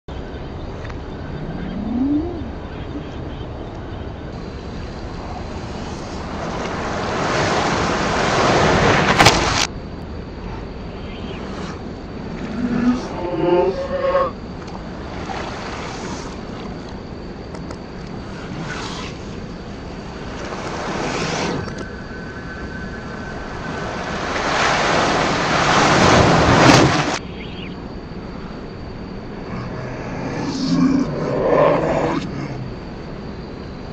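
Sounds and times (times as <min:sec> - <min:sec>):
river water rushing: 0:05.1 - 0:09.7, 0:23.7 - 0:27.2.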